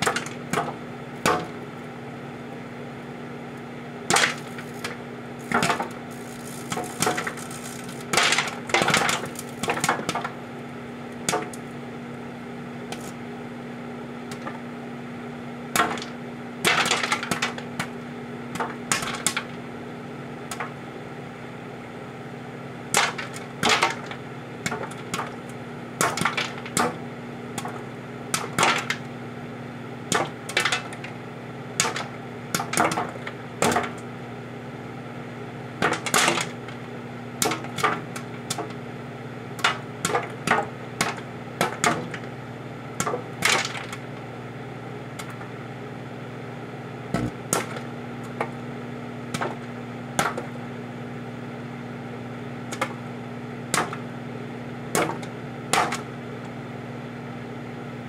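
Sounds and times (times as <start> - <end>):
popcorn kernels popping: 0.0 - 1.6, 4.0 - 10.4, 11.2 - 11.7, 15.7 - 19.5, 22.9 - 27.0, 27.6 - 29.1, 30.1 - 31.2, 31.8 - 34.1, 35.8 - 36.8, 37.4 - 38.8, 39.6 - 42.2, 47.2 - 48.6, 49.3 - 50.5, 52.7 - 53.0, 53.7 - 54.0, 54.9 - 56.1
microwave oven hum: 0.0 - 58.0.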